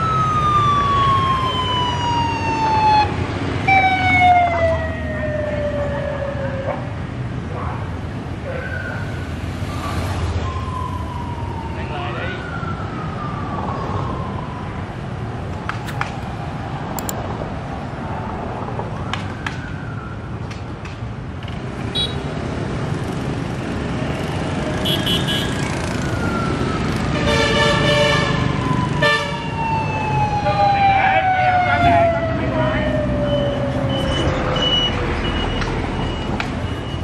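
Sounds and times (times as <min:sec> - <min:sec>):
sirens wailing: 0:00.0 - 0:07.2, 0:08.3 - 0:17.1, 0:18.5 - 0:20.7, 0:24.0 - 0:37.0
city traffic: 0:00.0 - 0:37.0
horns honking: 0:24.8 - 0:25.6, 0:27.1 - 0:28.4, 0:29.0 - 0:29.4.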